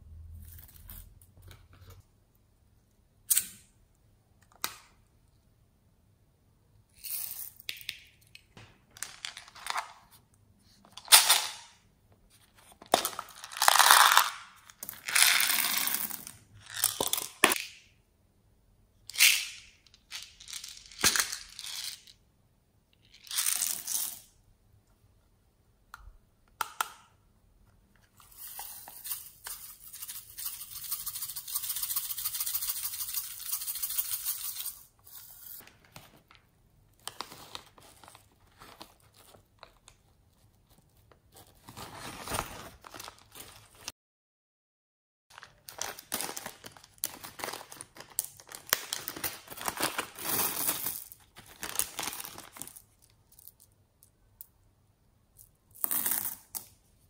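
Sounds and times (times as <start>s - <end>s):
plastic beads pouring: 13.1s - 17.5s.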